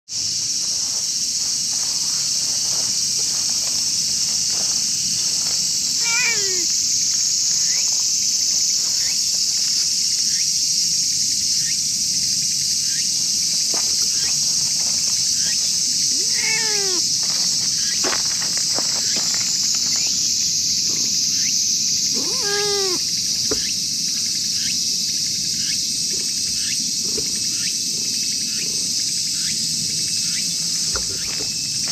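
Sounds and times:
high buzz of insects: 0.1s - 31.9s
cat meowing: 6.0s - 6.7s, 16.2s - 17.1s, 22.1s - 23.0s.

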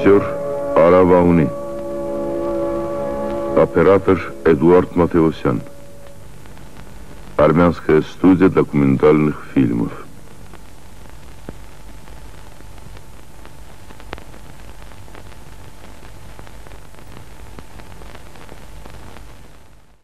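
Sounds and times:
low hum: 0.0s - 10.8s
film soundtrack hiss and crackle: 0.0s - 20.0s.

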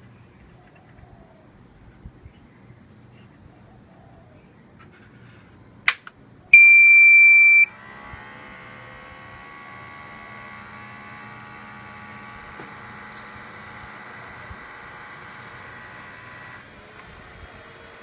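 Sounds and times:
cooling fans whirring: 0.0s - 18.0s
loud electronic beep: 6.6s - 7.7s
fan rattling: 7.8s - 18.0s.

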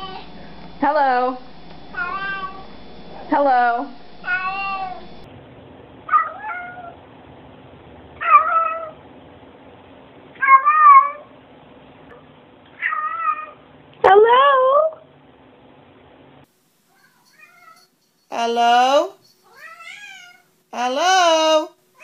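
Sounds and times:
cats meowing: 2.0s - 2.7s, 4.2s - 5.0s, 16.9s - 17.9s, 19.4s - 20.5s.

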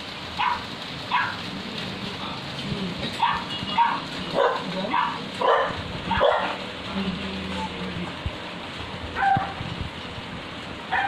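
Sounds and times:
dog yapping: 0.4s - 1.4s, 3.2s - 6.6s, 9.2s - 9.6s.

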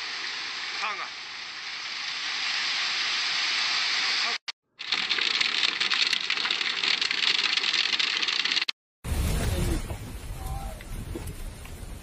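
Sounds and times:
heavy rain on hard surfaces: 0.0s - 4.4s, 9.1s - 12.0s.

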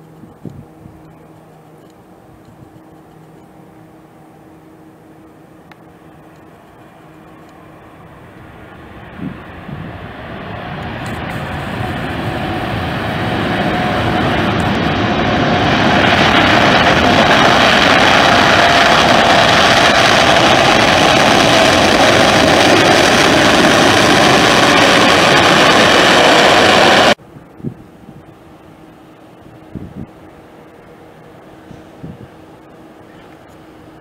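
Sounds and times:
jet engines roaring: 0.0s - 27.2s, 27.8s - 34.0s.

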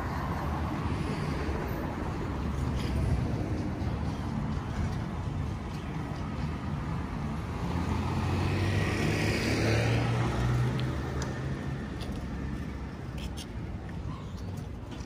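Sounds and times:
vehicle engine passing by: 7.6s - 12.0s.

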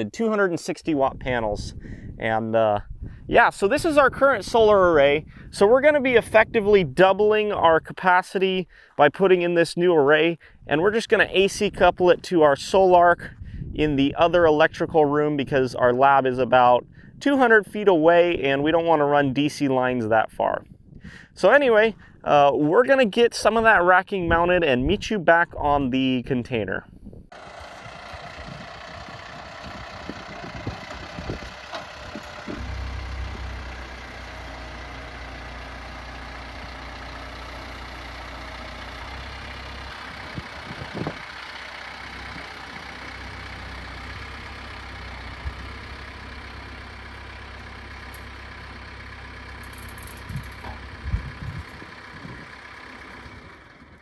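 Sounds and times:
tractor engine running: 27.3s - 54.0s.

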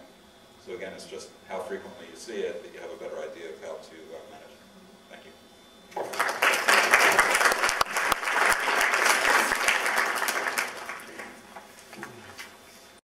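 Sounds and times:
audience applause: 6.0s - 11.4s.

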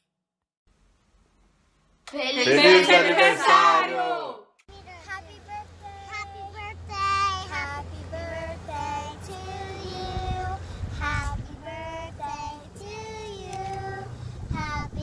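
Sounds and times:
girls singing together: 5.1s - 15.0s.

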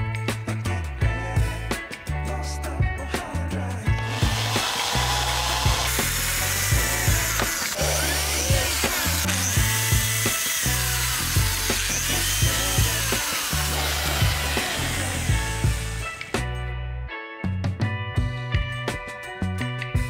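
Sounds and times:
background music with beat and bass: 0.0s - 20.0s
electric drill grinding metal: 3.9s - 16.5s.

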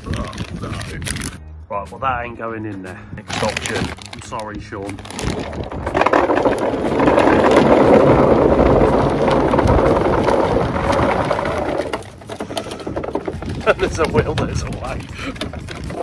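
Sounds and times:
plastic bag crinkling: 3.2s - 15.9s
bait balls rattling: 3.3s - 16.0s.

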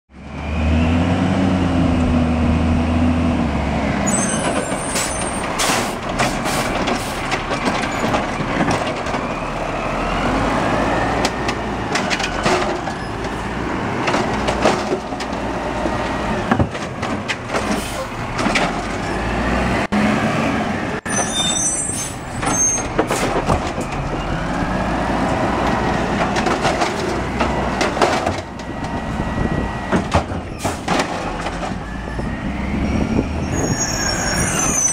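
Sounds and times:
diesel engine revving: 0.1s - 21.2s, 22.0s - 34.9s
clanks and bangs of metal: 11.4s - 13.4s.

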